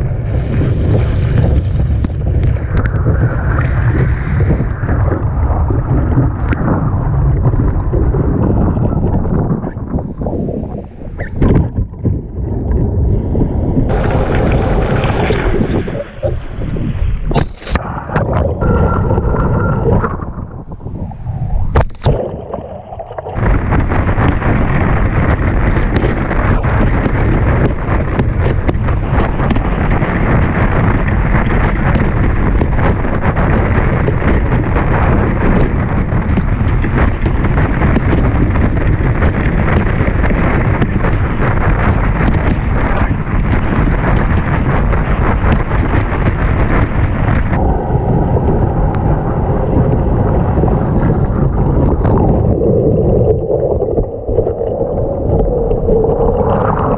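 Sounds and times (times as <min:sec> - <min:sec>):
water rushing under board: 0:00.0 - 0:56.9
water slapping and splashing: 0:00.0 - 0:56.9
wind buffeting microphone: 0:00.0 - 0:56.9.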